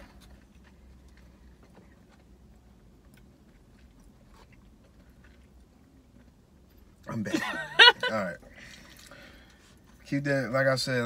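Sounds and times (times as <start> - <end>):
faint chewing: 0.0 - 7.1
low hum inside car: 0.0 - 11.0.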